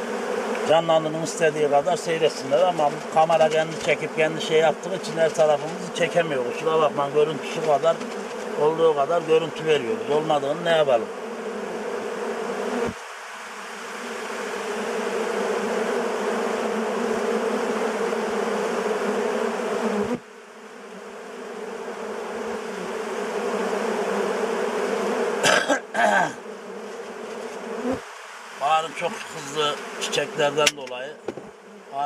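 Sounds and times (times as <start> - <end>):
bees buzzing: 0.0 - 32.0
short knocks: 30.6 - 31.5.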